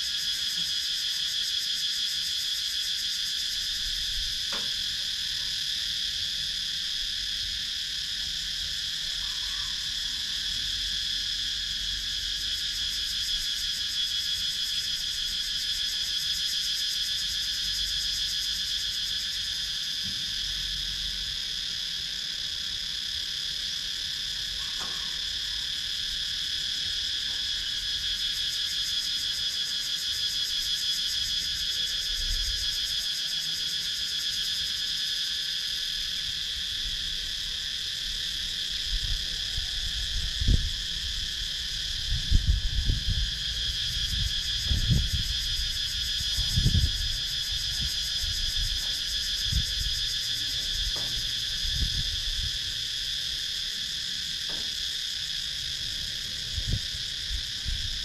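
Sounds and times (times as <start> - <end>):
cicadas singing: 0.0 - 58.0.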